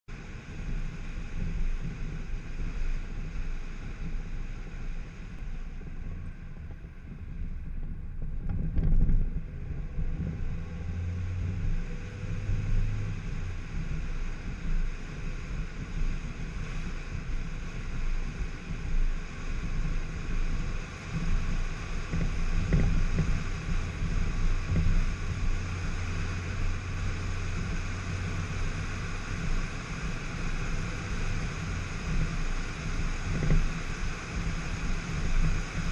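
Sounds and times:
car engine and tyre rumble: 0:00.0 - 0:35.9
wind noise on microphone: 0:00.1 - 0:35.9.

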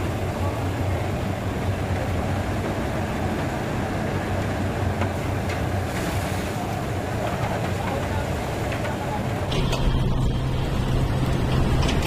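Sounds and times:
machinery noise: 0:07.2 - 0:12.0.

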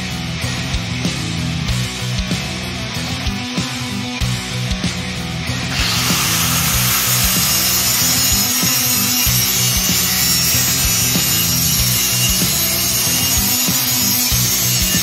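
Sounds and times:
rock music: 0:00.0 - 0:15.0
angle grinder cutting steel: 0:05.5 - 0:15.0.

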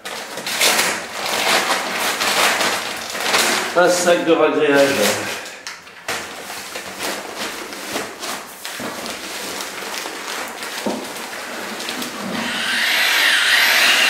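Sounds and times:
paper sack rustling: 0:00.0 - 0:12.4
mixer drill hissing: 0:12.4 - 0:14.0.

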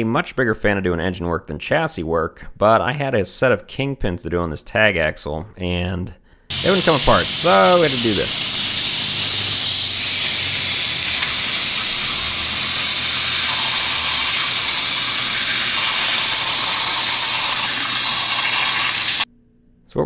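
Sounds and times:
oxygen lance hissing: 0:06.5 - 0:19.3.

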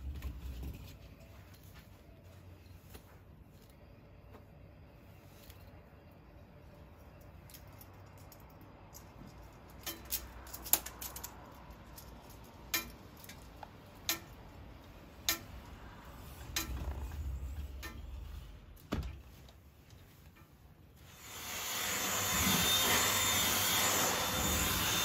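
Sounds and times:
low rumble: 0:15.6 - 0:19.4.

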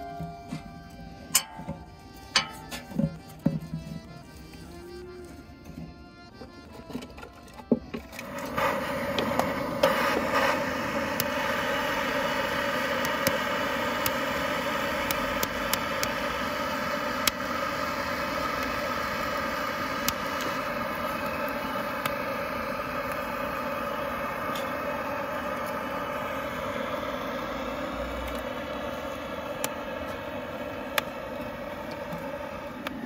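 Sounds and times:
wood popping and crackling: 0:00.0 - 0:11.6
gas blowtorch hissing: 0:08.0 - 0:33.0.

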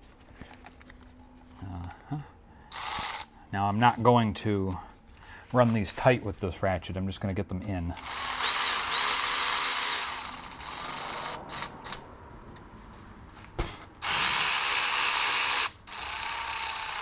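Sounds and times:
cordless ratchet whining: 0:02.7 - 0:03.3, 0:08.0 - 0:12.0, 0:14.0 - 0:17.0.

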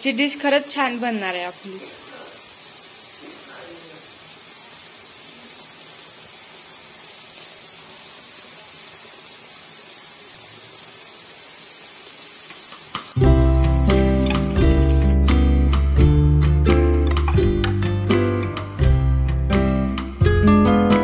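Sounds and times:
onion and tomato sizzling in oil: 0:00.0 - 0:21.0
guitar music: 0:13.2 - 0:21.0.

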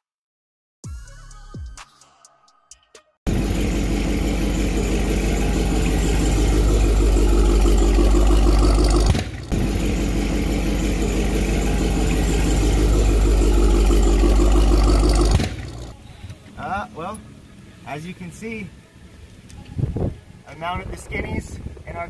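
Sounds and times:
car engine idling: 0:03.3 - 0:17.8.

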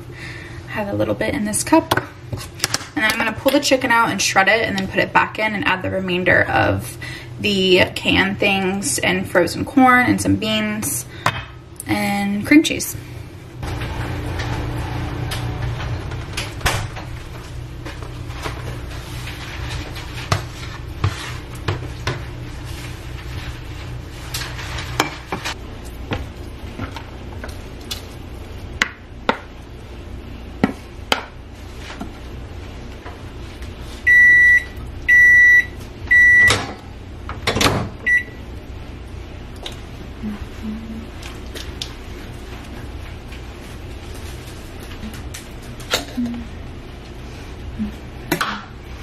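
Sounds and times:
kitchen appliance beeping: 0:34.1 - 0:36.7, 0:38.0 - 0:38.4.

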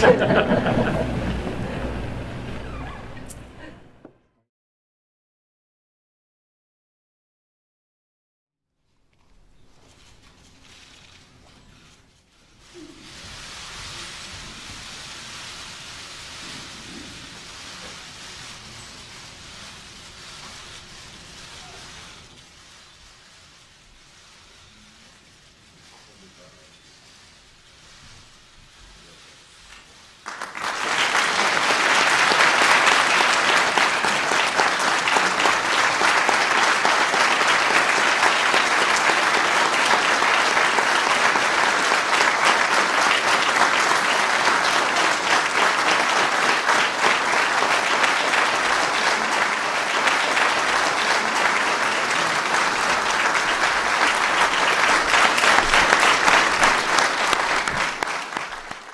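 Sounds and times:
large audience applauding: 0:00.0 - 0:04.0, 0:29.7 - 0:58.9.

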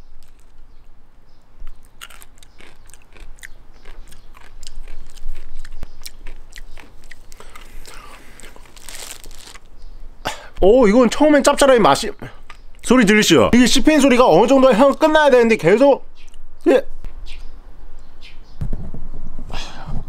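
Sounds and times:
crunchy chewing: 0:00.0 - 0:00.6, 0:01.6 - 0:09.9.

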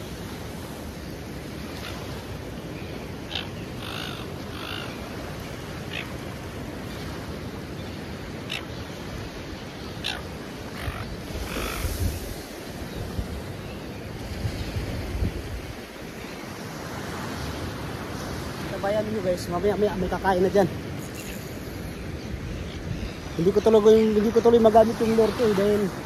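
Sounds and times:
surf washing: 0:00.0 - 0:26.0
harsh bird calls: 0:01.7 - 0:06.2, 0:07.8 - 0:14.1, 0:18.0 - 0:26.0
wind on microphone: 0:05.0 - 0:26.0.

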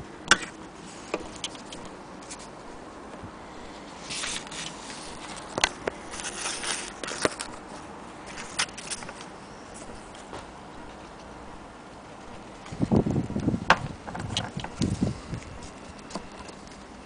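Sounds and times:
cloth rustling: 0:03.8 - 0:10.4.

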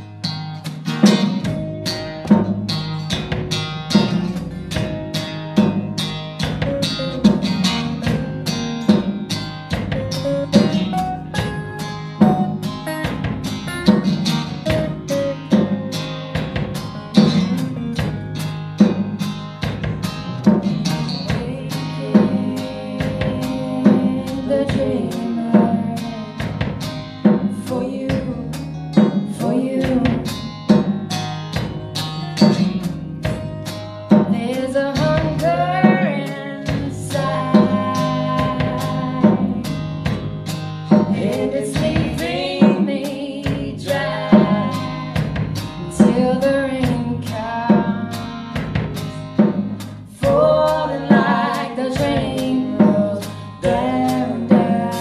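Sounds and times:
acoustic guitars strumming: 0:00.0 - 0:55.0
drum kit beat: 0:00.0 - 0:55.0
woman singing: 0:21.1 - 0:31.1, 0:32.0 - 0:33.0, 0:34.1 - 0:40.1, 0:40.9 - 0:49.1, 0:50.0 - 0:55.0.

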